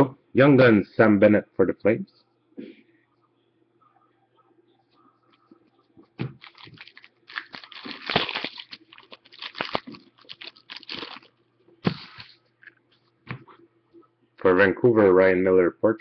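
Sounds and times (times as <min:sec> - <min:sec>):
plastic wrapper tearing and crinkling: 0:06.4 - 0:11.3.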